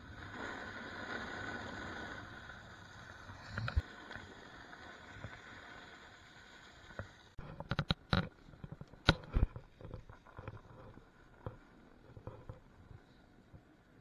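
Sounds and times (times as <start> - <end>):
snowboard sliding through powder: 0.0 - 7.4.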